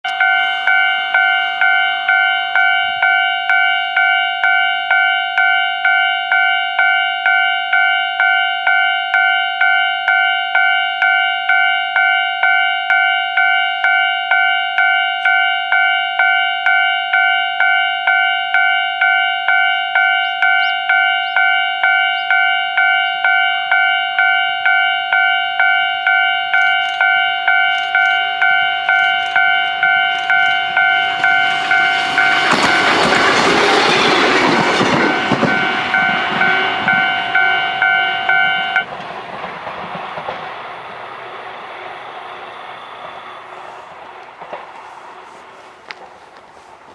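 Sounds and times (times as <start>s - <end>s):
level-crossing warning bell: 0.0s - 39.0s
train wheel clicks: 24.7s - 40.5s, 44.1s - 46.9s.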